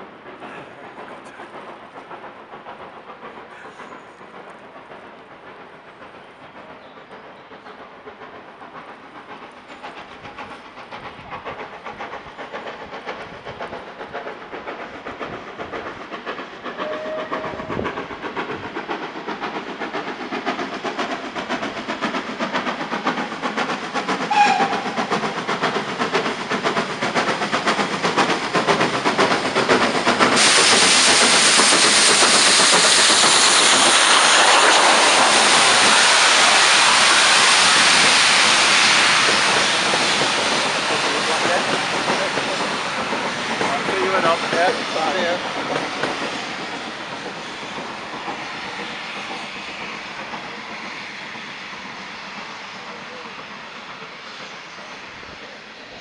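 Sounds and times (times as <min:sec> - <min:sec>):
loud steam hiss: 0:00.0 - 0:56.0
steam locomotive chuffing: 0:00.0 - 0:56.0.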